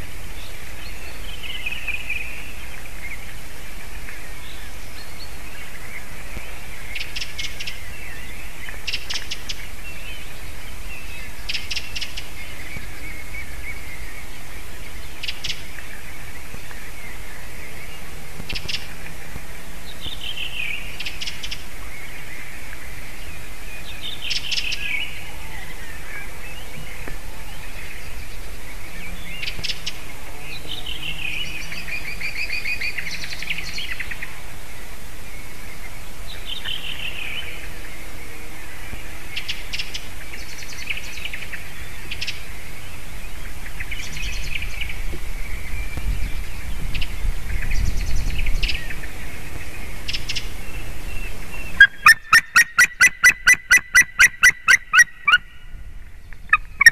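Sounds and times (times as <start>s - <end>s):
eagle chirps: 50.0s - 55.6s, 56.3s - 56.9s
eagle whining calls: 50.1s - 55.7s, 56.5s - 56.9s
rapid eagle yelping calls: 51.8s - 55.5s, 56.5s - 56.9s.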